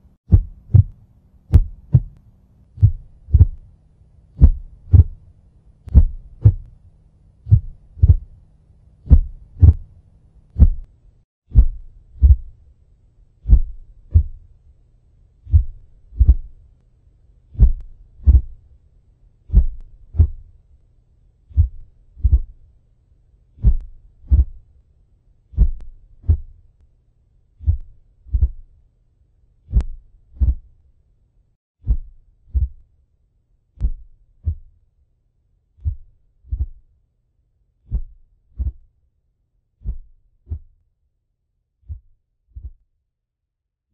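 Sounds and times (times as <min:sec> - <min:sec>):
heartbeat thumps: 0:00.3 - 0:02.2, 0:02.8 - 0:03.7, 0:04.4 - 0:05.2, 0:05.9 - 0:06.8, 0:07.5 - 0:08.4, 0:09.1 - 0:09.9, 0:10.6 - 0:10.9, 0:11.5 - 0:12.6, 0:13.4 - 0:14.5, 0:15.4 - 0:16.6, 0:17.6 - 0:18.6, 0:19.5 - 0:20.5, 0:21.5 - 0:22.6, 0:23.6 - 0:24.6, 0:25.6 - 0:26.6, 0:27.6 - 0:28.6, 0:31.8 - 0:32.8, 0:33.8 - 0:34.7, 0:35.8 - 0:36.8, 0:41.9 - 0:42.8.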